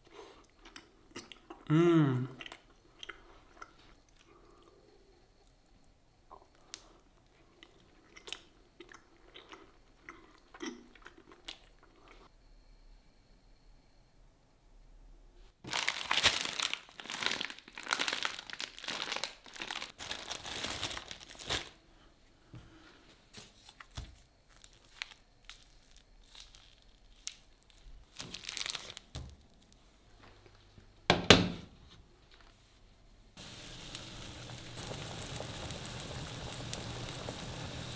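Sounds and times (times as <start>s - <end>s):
plastic packaging crinkling: 15.6s - 21.8s, 23.4s - 29.8s.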